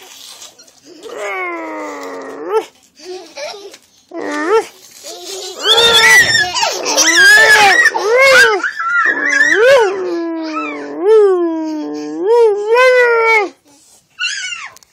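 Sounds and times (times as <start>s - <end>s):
toddlers wailing: 5.3s - 9.6s.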